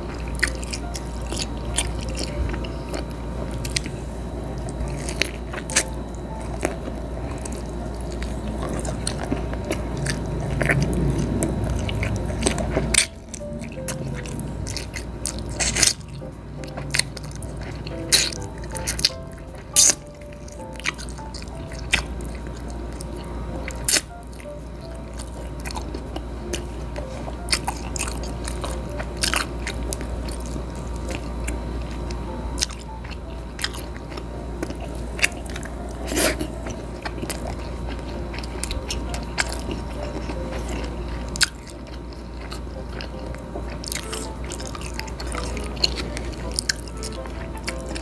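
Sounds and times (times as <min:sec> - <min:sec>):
low steady hum: 0:00.0 - 0:48.0
person chewing food: 0:00.0 - 0:48.0.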